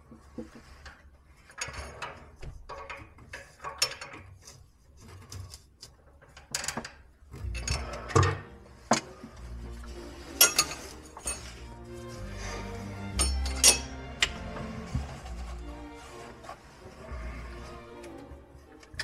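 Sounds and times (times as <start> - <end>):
plastic fittings clicking and rattling: 0.1 - 9.2.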